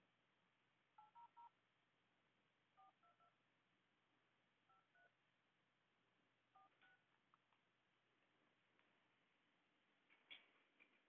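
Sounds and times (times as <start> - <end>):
phone keypad two-tone beeps: 2.8 - 3.4.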